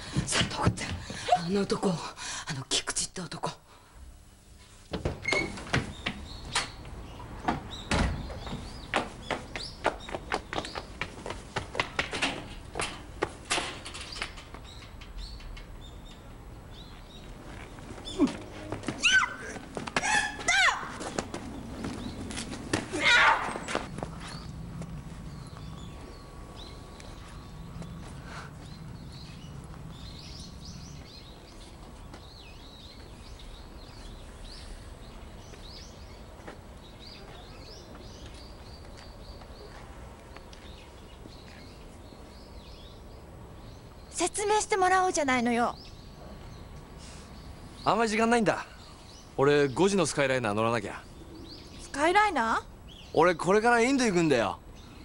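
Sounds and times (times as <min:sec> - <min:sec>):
small birds chirping: 0:05.2 - 0:12.0, 0:12.6 - 0:55.0
footsteps running on pavement: 0:08.4 - 0:12.2, 0:17.8 - 0:22.9
low hum: 0:21.4 - 0:35.5.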